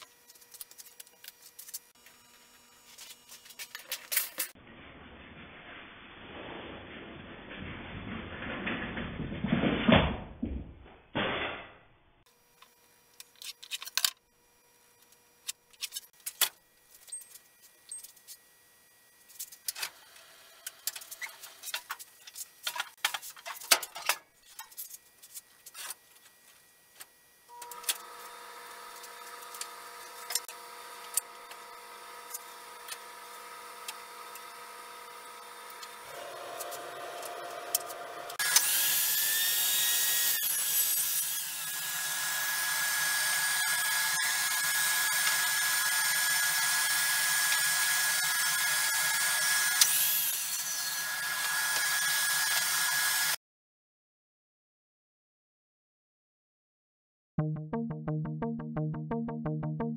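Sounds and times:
machine hum with whine: 0.0 - 4.5, 26.0 - 38.4.

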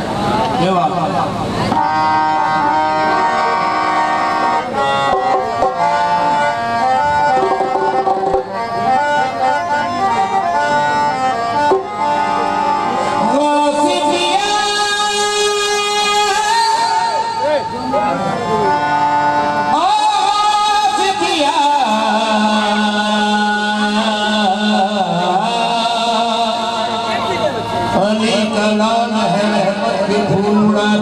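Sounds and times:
harmoniums playing held notes: 0.0 - 31.0
person singing: 13.0 - 17.3.

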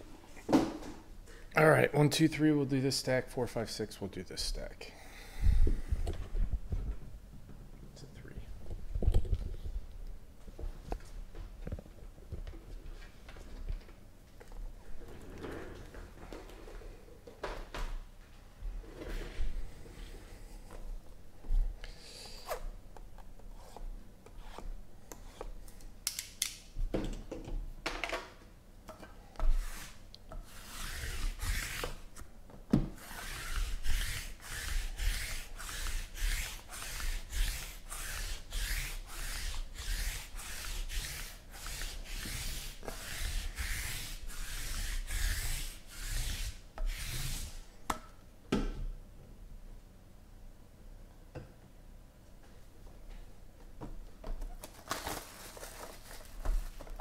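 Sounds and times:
roller rasping on boxes: 29.5 - 32.0, 33.0 - 47.6.

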